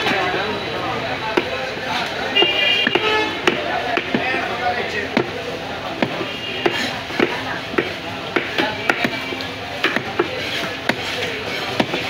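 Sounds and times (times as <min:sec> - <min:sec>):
knife chopping on wooden block: 0:02.8 - 0:04.4, 0:06.0 - 0:12.0.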